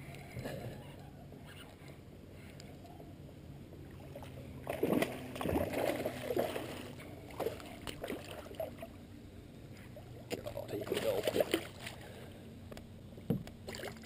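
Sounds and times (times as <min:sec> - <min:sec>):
water splashing: 0:03.8 - 0:09.0, 0:09.8 - 0:12.3, 0:13.6 - 0:14.0.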